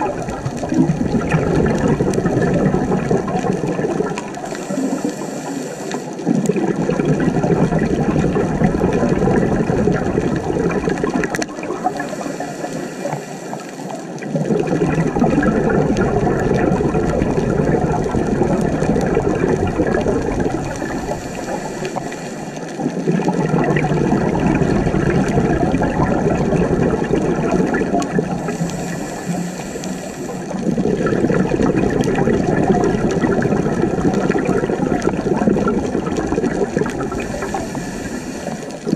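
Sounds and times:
bubbling exhalation: 0.0 - 12.9, 14.2 - 38.9
regulator inhalation hiss: 4.4 - 6.3, 11.8 - 14.1, 20.8 - 22.7, 28.4 - 30.6, 37.1 - 38.9.

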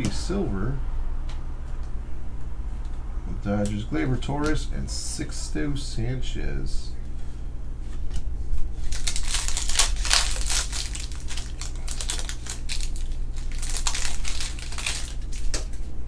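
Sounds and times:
card pack wrappers crinkling: 8.8 - 15.9.

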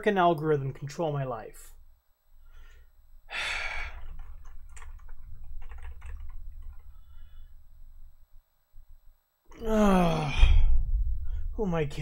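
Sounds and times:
keyboard typing clicks: 4.0 - 7.0
low rumble: 9.9 - 12.0.

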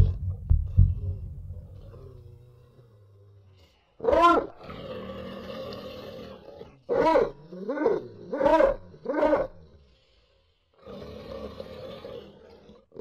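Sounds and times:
steady hum: 0.0 - 2.1.

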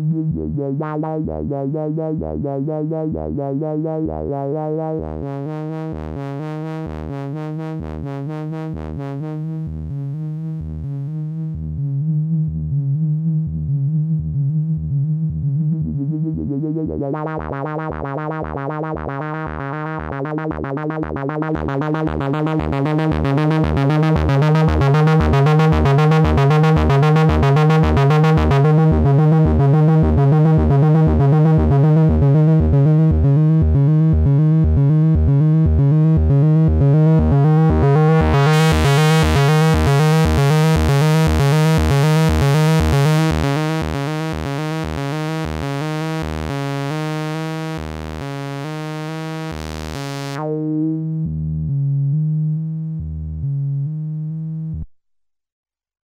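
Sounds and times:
synth sequencer loop: 15.6 - 51.0.

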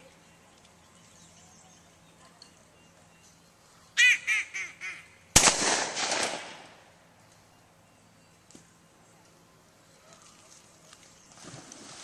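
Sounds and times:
duck call quacks: 4.0 - 5.2
gunshot: 5.4 - 6.7.

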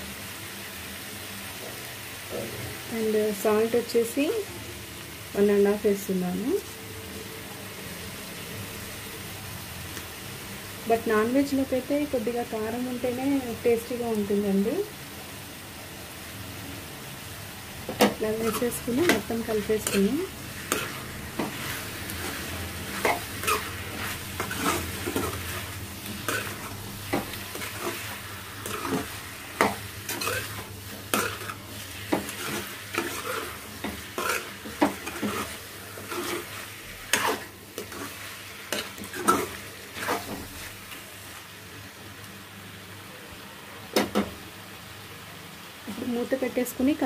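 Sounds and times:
steady sizzle: 0.0 - 47.0
spoon scraping and clinking pan: 28.6 - 36.5.

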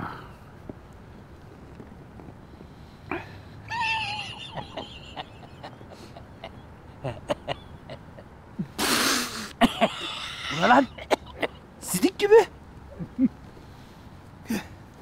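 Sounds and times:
beer spat out in a spray: 8.8 - 9.5.

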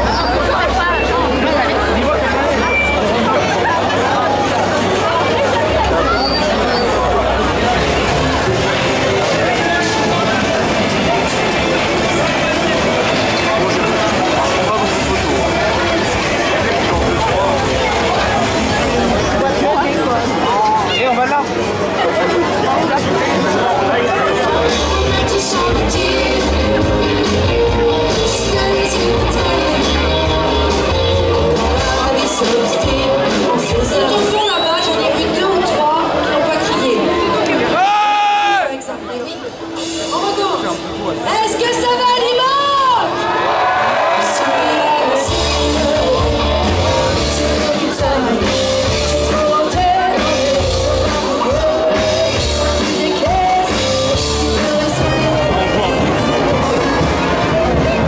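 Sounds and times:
bass guitar: 4.6 - 20.0, 24.2 - 34.1, 45.2 - 58.0
live rock band playing: 6.8 - 19.5, 24.4 - 34.4, 39.4 - 42.4, 44.9 - 58.0
electric guitar: 7.1 - 20.3, 23.9 - 34.2, 44.4 - 58.0
person singing: 24.6 - 34.4, 44.3 - 58.0.

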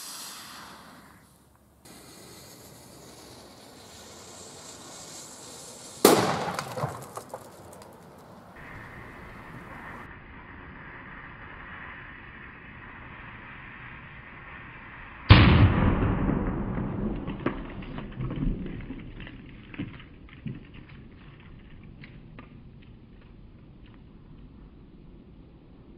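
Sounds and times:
rocket motor hissing: 0.0 - 6.5
pops and crackles: 1.5 - 8.3, 16.9 - 24.1
firework bang: 1.8 - 7.7, 15.3 - 20.6.

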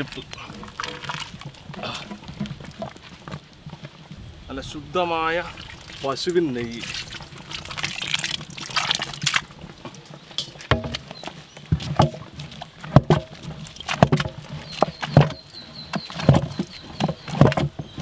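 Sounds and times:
ghee trickling onto food: 5.1 - 10.4
short knocks and thuds: 10.6 - 11.1, 12.9 - 15.4.

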